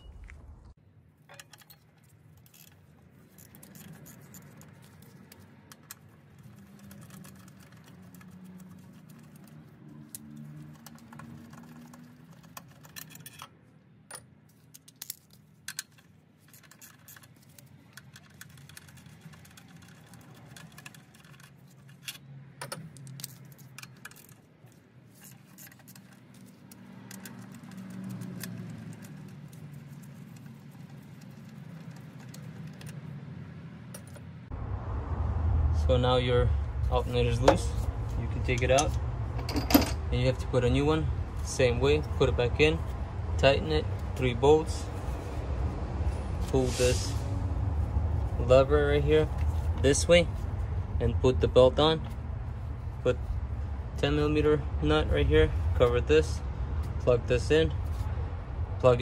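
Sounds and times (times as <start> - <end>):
metal clanks: 1.2 - 2.8, 38.5 - 40.1.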